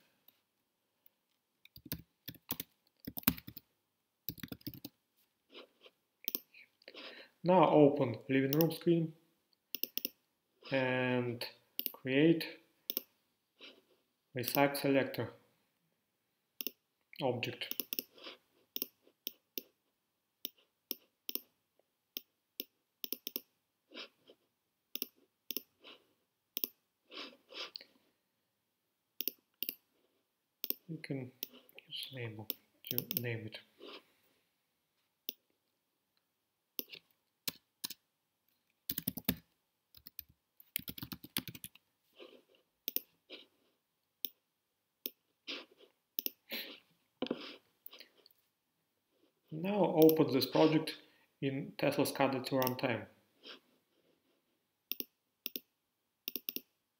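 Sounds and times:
computer mouse clicks: 0:01.6 - 0:03.6, 0:06.3 - 0:06.5, 0:09.7 - 0:10.2, 0:12.9 - 0:13.1, 0:16.6 - 0:16.8, 0:17.6 - 0:18.1, 0:18.8 - 0:19.7, 0:22.2 - 0:23.5, 0:24.9 - 0:25.7, 0:26.6 - 0:26.8, 0:29.2 - 0:29.8, 0:30.6 - 0:30.8, 0:32.5 - 0:33.3, 0:38.9 - 0:41.8, 0:42.9 - 0:43.1, 0:46.2 - 0:46.4, 0:54.9 - 0:55.7, 0:56.3 - 0:56.7
typing on keyboard: 0:01.7 - 0:03.6, 0:04.3 - 0:04.9, 0:38.9 - 0:39.4, 0:40.0 - 0:41.8, 0:56.3 - 0:56.6.

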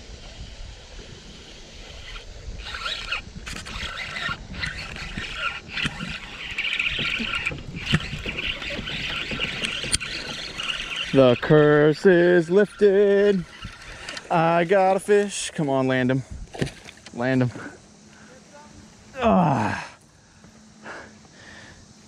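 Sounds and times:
wind rumble on microphone: 0:00.0 - 0:11.8, 0:16.2 - 0:16.6
fishing reel whirring: 0:00.0 - 0:17.4.

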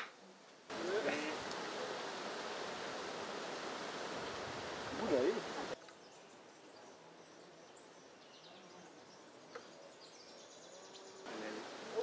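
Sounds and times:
birds chirping: 0:04.7 - 0:12.0.

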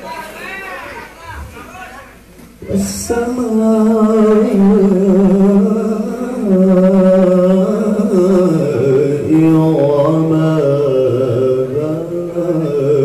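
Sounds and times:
man reciting melodically: 0:02.6 - 0:13.0.

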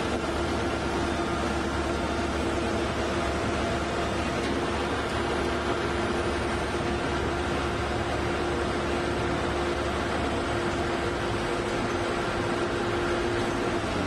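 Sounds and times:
drilling rig drone: 0:00.0 - 0:14.0.

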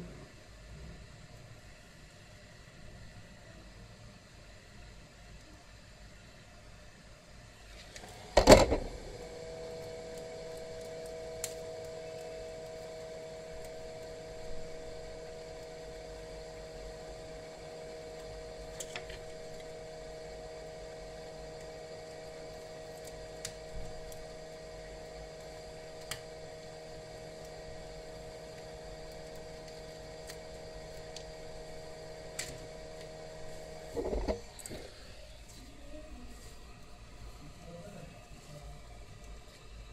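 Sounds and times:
small electric motor humming: 0:08.0 - 0:39.8.

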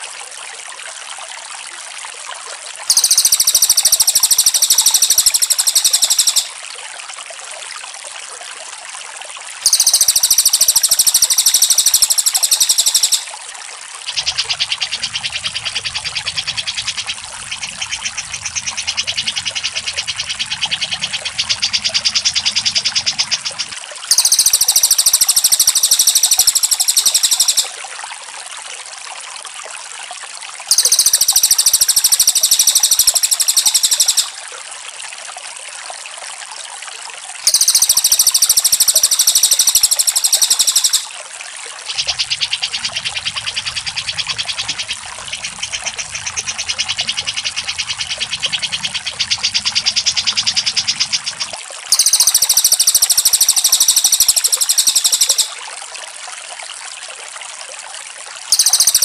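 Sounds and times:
trickling water: 0:00.0 - 0:59.0
loud high bird trills: 0:02.9 - 0:06.6, 0:09.7 - 0:13.3, 0:24.1 - 0:27.8, 0:30.7 - 0:34.4, 0:37.5 - 0:41.1, 0:41.9 - 0:55.6, 0:58.5 - 0:59.0
softer lower bird trill: 0:02.9 - 0:06.6, 0:09.7 - 0:13.4, 0:24.1 - 0:27.8, 0:30.7 - 0:34.4, 0:37.5 - 0:41.1, 0:41.9 - 0:55.6, 0:58.5 - 0:59.0.

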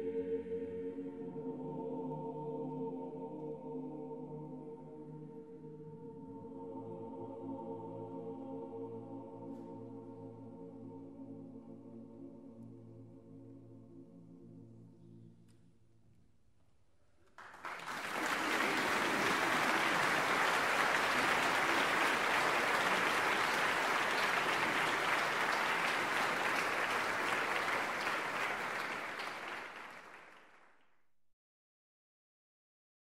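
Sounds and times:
audience applause: 0:17.4 - 0:30.6.

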